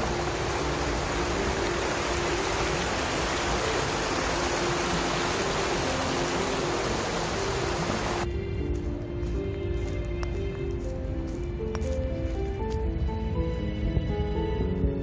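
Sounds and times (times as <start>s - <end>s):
stream rushing over rocks: 0.0s - 8.3s
soft background music: 0.0s - 15.0s.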